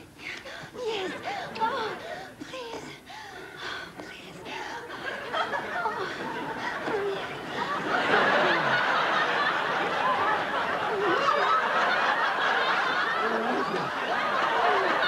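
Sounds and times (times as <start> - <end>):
several people laughing: 4.9 - 15.0.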